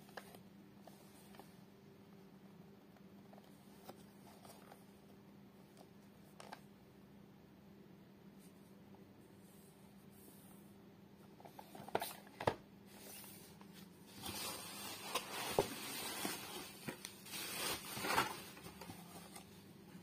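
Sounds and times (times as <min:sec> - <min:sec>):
bubble wrap crinkling: 0:14.1 - 0:19.3.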